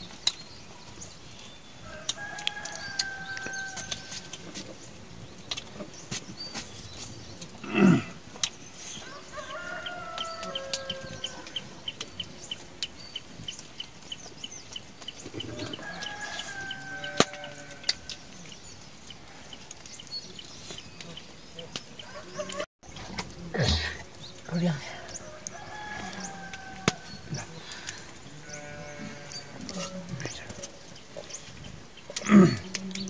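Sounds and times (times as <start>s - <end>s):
rooster crowing: 1.8s - 4.3s, 9.0s - 11.7s, 15.5s - 17.9s, 22.0s - 22.7s, 25.2s - 27.2s.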